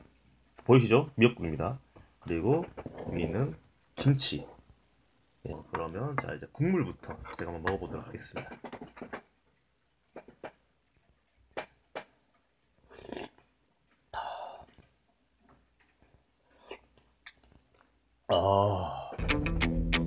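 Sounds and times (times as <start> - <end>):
person sipping hot soup: 12.8 - 14.9, 16.4 - 17.5.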